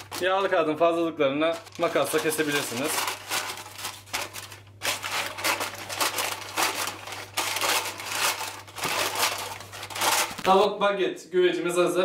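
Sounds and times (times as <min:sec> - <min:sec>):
paper crinkling: 0:00.0 - 0:10.6
scissors snipping paper: 0:01.6 - 0:10.5.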